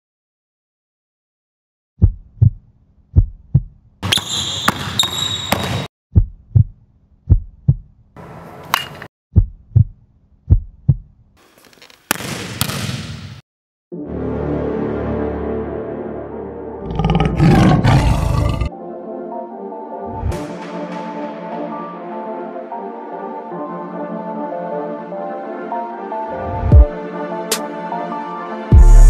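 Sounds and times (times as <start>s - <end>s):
heartbeat double thumps: 2.0s - 3.8s, 6.1s - 7.9s, 9.3s - 11.1s.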